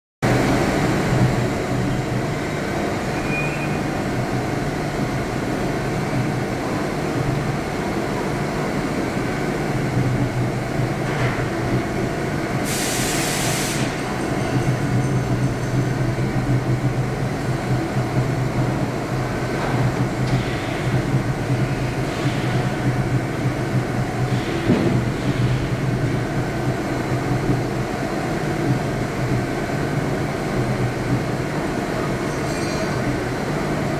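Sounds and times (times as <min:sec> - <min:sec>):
brief loud hiss: 0:12.7 - 0:14.0.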